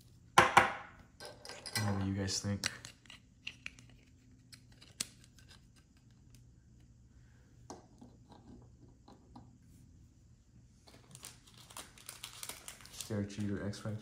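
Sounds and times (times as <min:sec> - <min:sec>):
low steady hum: 0:00.0 - 0:14.0
trading cards clicking and rustling: 0:10.9 - 0:13.8.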